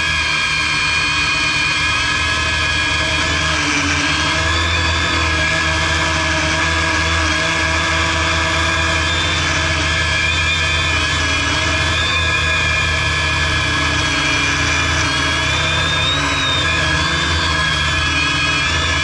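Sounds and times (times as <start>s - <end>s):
drone propellers whining: 0.0s - 19.0s.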